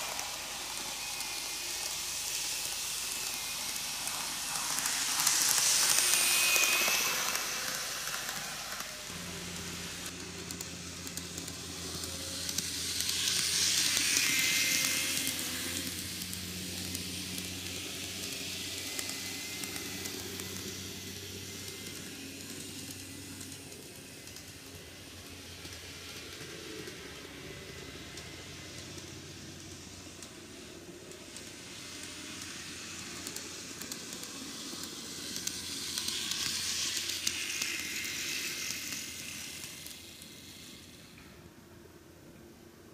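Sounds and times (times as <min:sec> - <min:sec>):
model trains running on track: 0:00.0 - 0:42.9.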